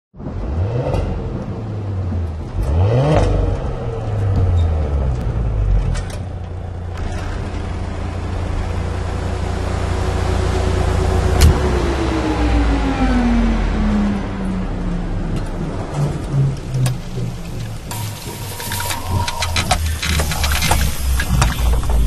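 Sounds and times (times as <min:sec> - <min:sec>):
engine revving: 0:00.2 - 0:22.0
low engine rumble: 0:00.2 - 0:22.0
tone falling in pitch: 0:16.3 - 0:20.0.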